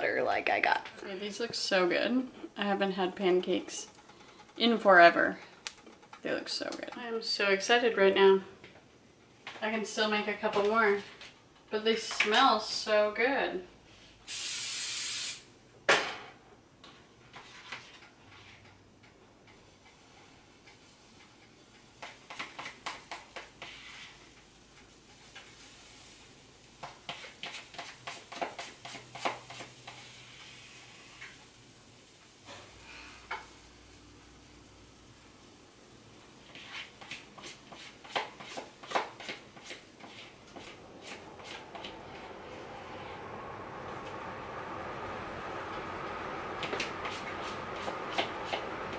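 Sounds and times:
spatula scraping and tapping in pan: 19.5 - 25.8, 26.7 - 31.5, 36.4 - 42.0.

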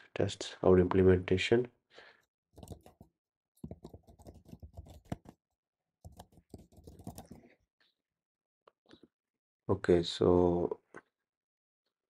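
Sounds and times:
faint keyboard typing: 2.6 - 5.4, 6.0 - 7.5.

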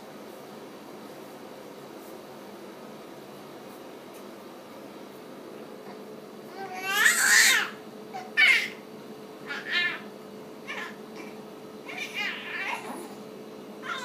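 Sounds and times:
baby squealing and cooing: 6.6 - 8.8, 9.5 - 10.1, 10.7 - 13.2.

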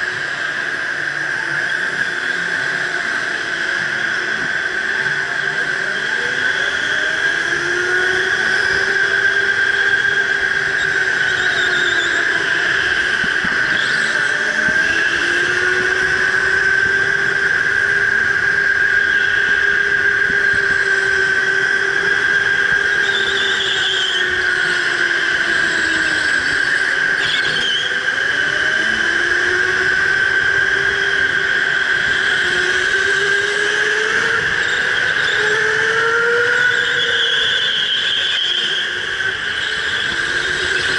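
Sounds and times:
electric go-kart motor whining: 0.0 - 40.9
tyre squeals on concrete: 10.5 - 15.3, 34.5 - 40.9.

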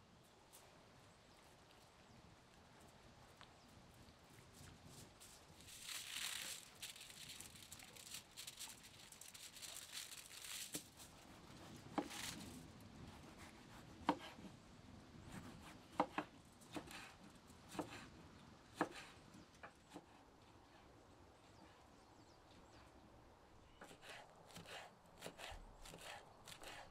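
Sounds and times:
aluminium foil rustling: 4.9 - 12.7.

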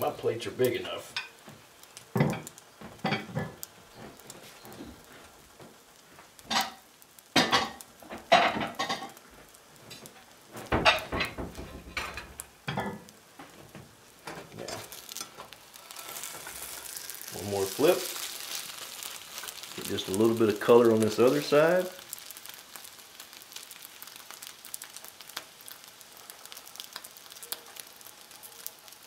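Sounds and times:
omelette sizzling in pan: 0.0 - 29.0
kitchenware clattering: 2.2 - 3.6, 7.4 - 9.2, 10.7 - 13.1.

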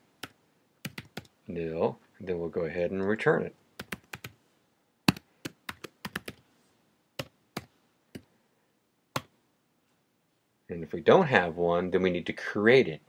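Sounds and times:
keyboard typing: 0.2 - 1.3, 3.8 - 4.4, 5.1 - 6.4.

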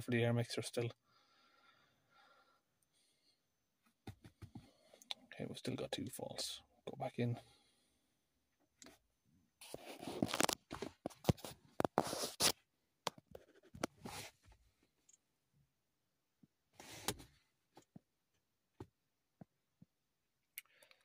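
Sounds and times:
handling noise rustling and rubbing: 9.6 - 12.6, 13.2 - 15.0.

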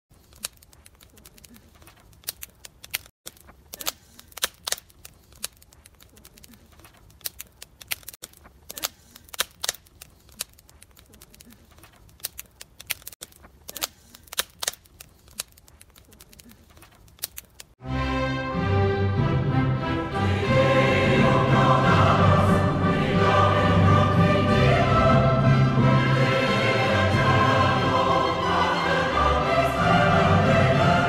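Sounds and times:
wood fire crackling: 0.1 - 17.8.

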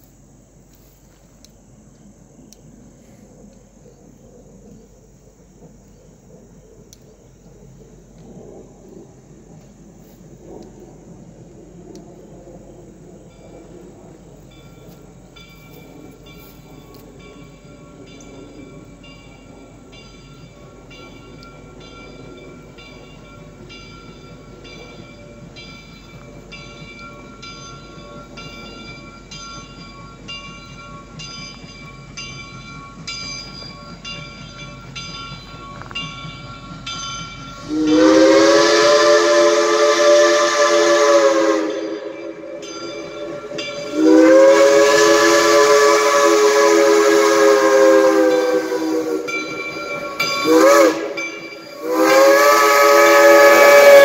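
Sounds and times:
steam locomotive rumble: 0.0 - 54.0
crossing signal bell dinging: 14.4 - 38.4, 41.9 - 44.6, 48.1 - 52.4
steam whistle blast: 37.6 - 54.0.

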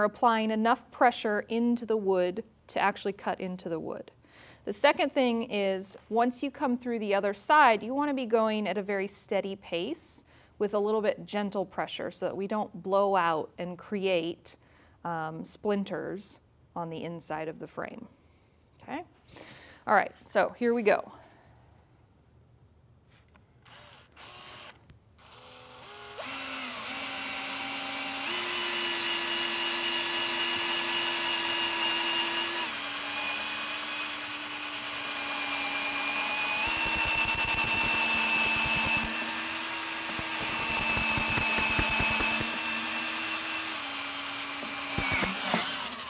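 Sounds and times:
cordless drill boring into wood: 23.7 - 46.0
drill bit chattering in wood: 32.4 - 46.0.

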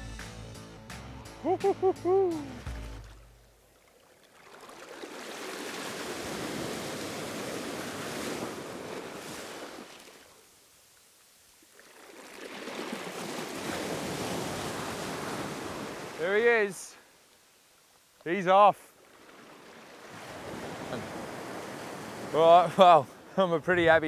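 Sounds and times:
small waves washing up beach: 3.7 - 18.2, 18.8 - 23.4.

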